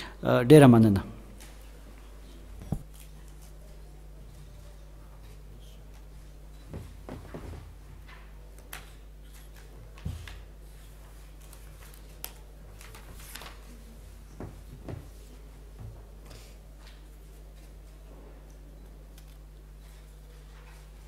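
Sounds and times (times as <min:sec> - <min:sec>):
electrical mains hum: 0:00.0 - 0:21.0.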